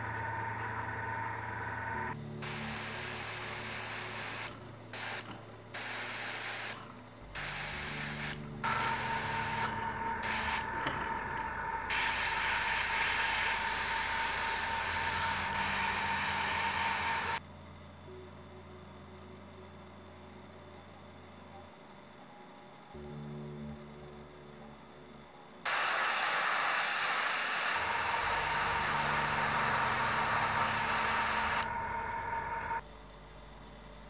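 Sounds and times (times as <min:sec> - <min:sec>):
airbrush spraying hiss: 0:02.4 - 0:11.2, 0:11.9 - 0:17.4, 0:25.7 - 0:31.7.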